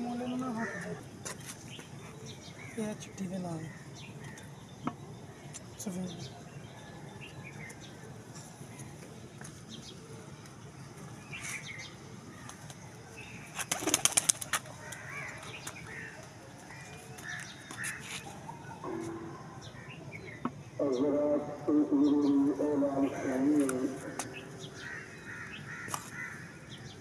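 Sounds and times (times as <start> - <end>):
pigeon wings clapping: 13.6 - 15.0.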